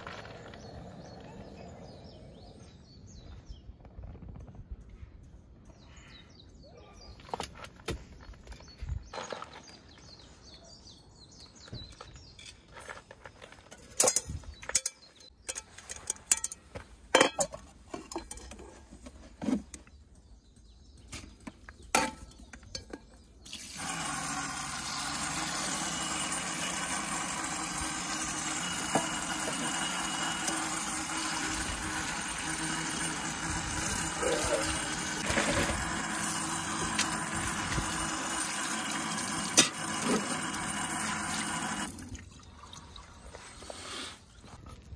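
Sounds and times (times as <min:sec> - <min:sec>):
metal cookware clinking: 0:13.9 - 0:18.7
water pouring into sink: 0:36.2 - 0:43.0.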